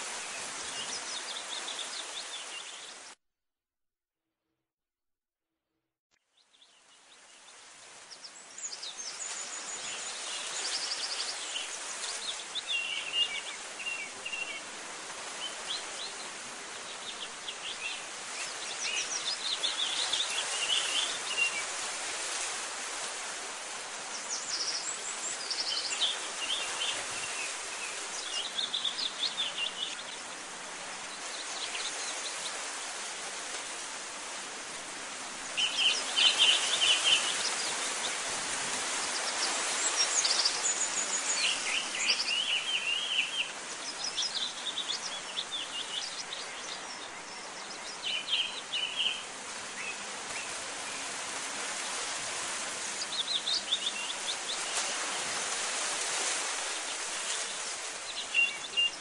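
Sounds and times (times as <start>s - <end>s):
small birds chirping: 39.0s - 51.1s.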